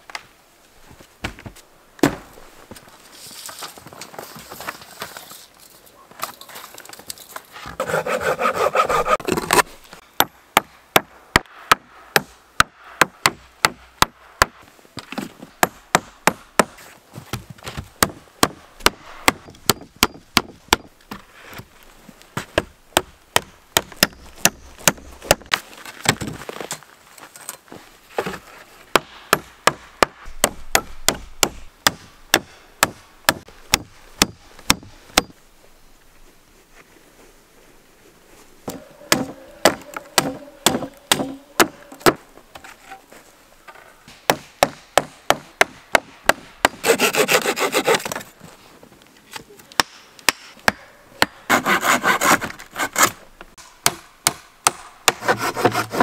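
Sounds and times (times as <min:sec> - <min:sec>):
rasping noise: 0:07.6 - 0:09.7.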